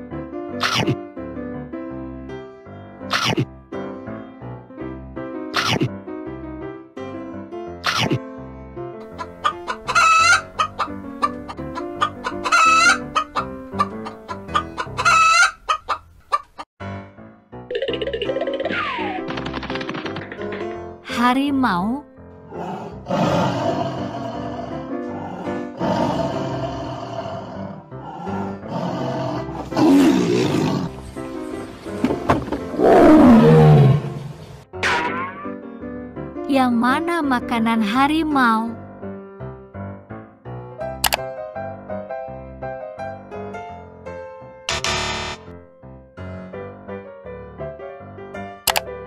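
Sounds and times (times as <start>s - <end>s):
light background music: 0.4s - 15.5s, 17.0s - 26.2s, 28.1s - 39.7s
chicken clucking: 9.2s - 16.7s
tiger roar: 22.4s - 31.0s, 32.7s - 34.4s.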